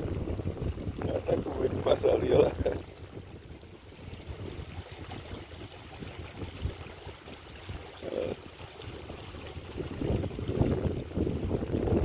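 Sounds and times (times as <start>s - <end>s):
flowing water rushing: 0.0s - 12.0s
wind rumbling on microphone: 0.0s - 12.0s.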